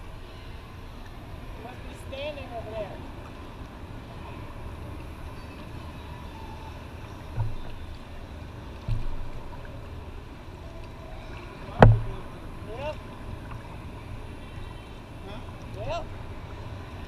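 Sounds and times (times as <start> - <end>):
low rumble: 3.0 - 17.0
dull knocks against kayak: 7.4 - 7.8, 8.9 - 9.2, 11.8 - 12.4.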